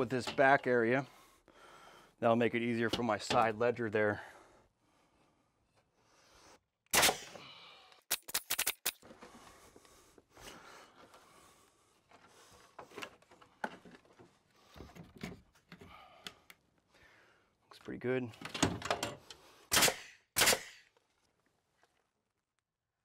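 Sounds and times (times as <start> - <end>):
sharp clicks: 8.1 - 9.0.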